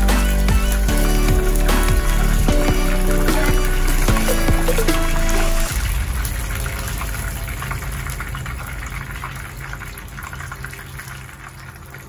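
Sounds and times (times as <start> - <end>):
chicken sizzling in hot oil: 0.0 - 12.0.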